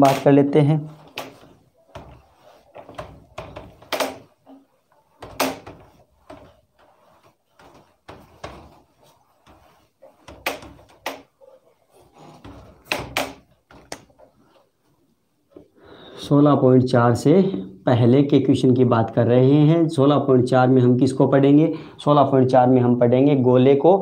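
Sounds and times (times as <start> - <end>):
hand rubbing whiteboard: 0.0 - 15.8.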